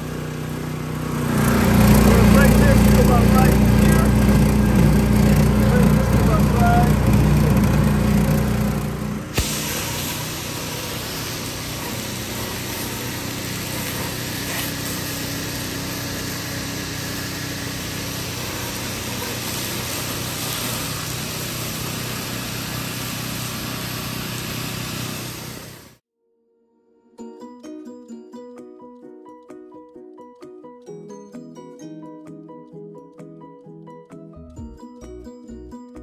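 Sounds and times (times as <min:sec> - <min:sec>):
gas engine running: 0:00.0 - 0:26.0
water spray hissing: 0:01.2 - 0:26.0.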